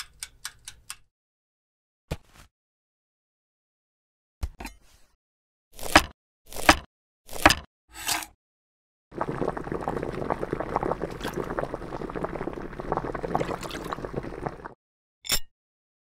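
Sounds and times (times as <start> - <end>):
water bubbling at a boil: 9.1 - 14.8.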